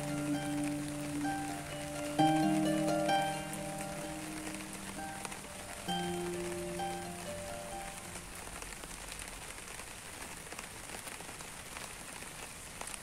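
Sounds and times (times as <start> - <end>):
held music notes: 0.0 - 8.7
rain falling on leaves: 0.0 - 13.0.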